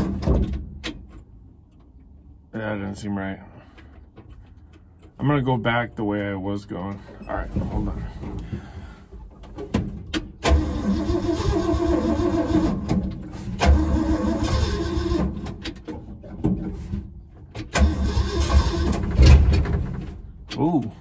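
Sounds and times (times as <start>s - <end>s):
engine starter cranking: 10.3s - 15.8s, 17.6s - 20.1s.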